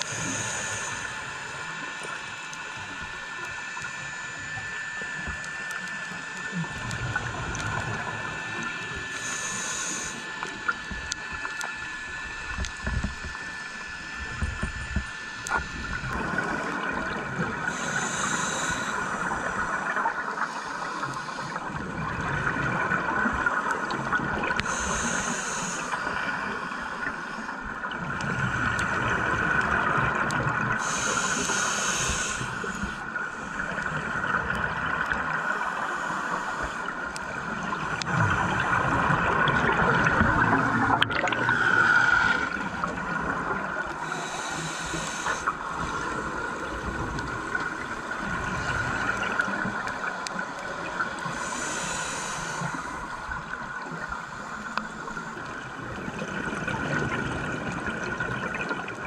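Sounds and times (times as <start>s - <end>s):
regulator breathing underwater: 0.0s - 22.1s, 23.5s - 55.7s
underwater hiss and hum: 0.0s - 59.0s
exhaled bubbles: 36.8s - 54.2s, 55.2s - 59.0s.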